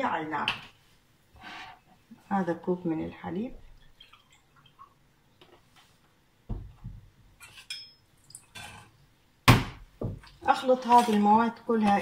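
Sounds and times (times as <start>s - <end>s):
milk pouring: 3.6s - 5.1s.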